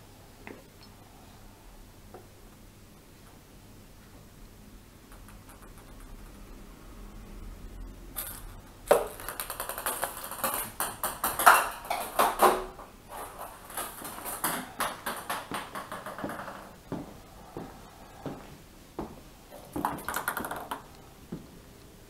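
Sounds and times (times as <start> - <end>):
ping pong ball bouncing on tile: 5.1 - 6.4, 8.9 - 12.5, 14.4 - 16.8, 19.7 - 21.0.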